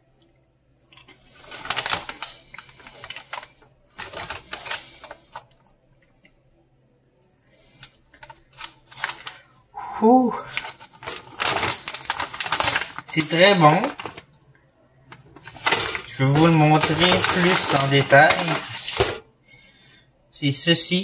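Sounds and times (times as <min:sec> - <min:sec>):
foil snack bag crinkling: 0:01.0 - 0:05.6, 0:07.6 - 0:09.5, 0:10.2 - 0:14.3, 0:15.1 - 0:19.2
crunchy crisps being chewed: 0:10.7 - 0:13.3.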